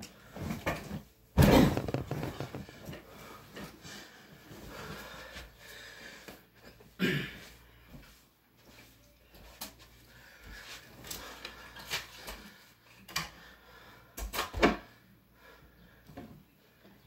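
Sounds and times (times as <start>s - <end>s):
knocks and rustles of handling: 0.3s - 3.8s
thumps: 1.4s - 3.0s.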